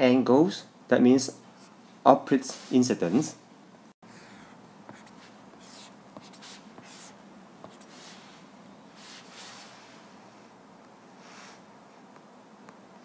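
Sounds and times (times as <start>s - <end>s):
faint steady hum: 0.0s - 13.0s
stylus scratching on tablet screen: 4.9s - 8.4s, 9.0s - 9.7s.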